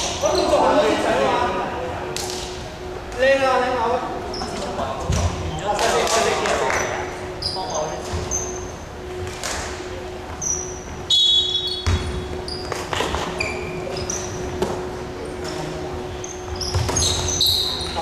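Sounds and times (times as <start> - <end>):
sneakers squeaking: 4.2 - 5.6, 6.8 - 9.2, 10.2 - 18.0
basketball bouncing: 11.8 - 12.2.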